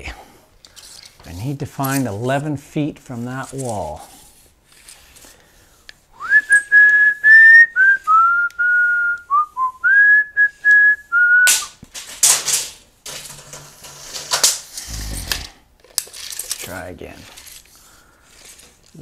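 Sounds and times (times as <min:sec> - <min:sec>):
man whistling a tune: 0:06.2 - 0:11.7
tape measure blade rattling: 0:11.5 - 0:19.0.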